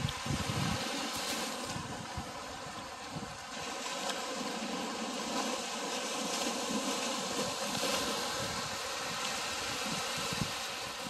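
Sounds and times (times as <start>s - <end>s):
wind buffeting microphone: 0.0s - 3.8s, 6.7s - 11.0s
small waves washing on sand: 0.0s - 11.0s.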